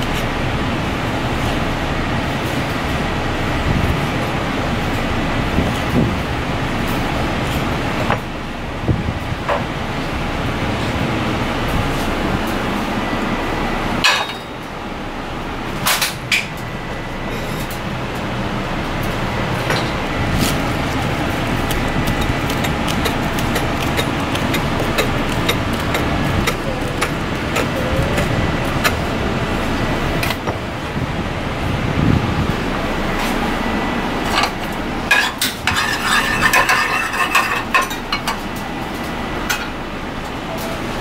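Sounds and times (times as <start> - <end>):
kitchen background noise: 15.7 - 30.6, 33.1 - 41.0.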